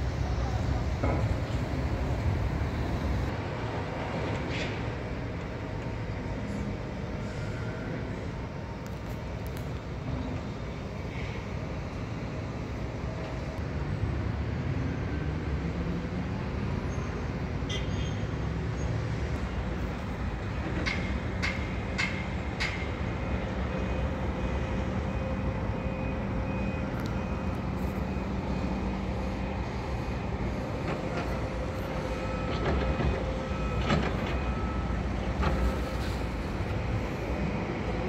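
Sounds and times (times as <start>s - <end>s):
excavator diesel engines rumbling: 0.0s - 38.0s
reversing alarm beeping: 22.6s - 38.0s.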